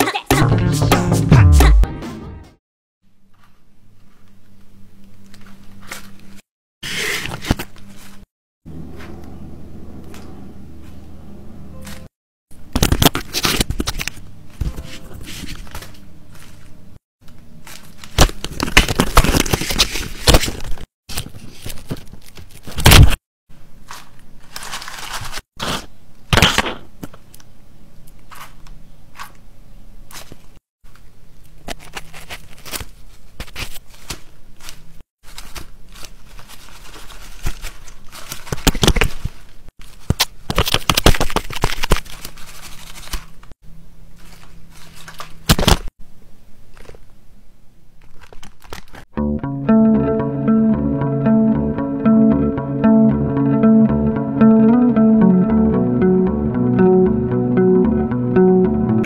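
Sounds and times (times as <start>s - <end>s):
paper crinkling and rustling: 3.3s - 8.3s, 12.7s - 23.2s, 23.8s - 25.9s, 30.1s - 45.9s, 46.6s - 47.1s, 48.0s - 49.1s.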